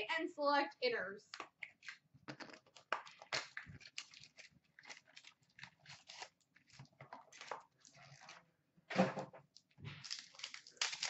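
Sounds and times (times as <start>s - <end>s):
packaging being torn open: 3.2s - 8.3s, 10.0s - 11.0s.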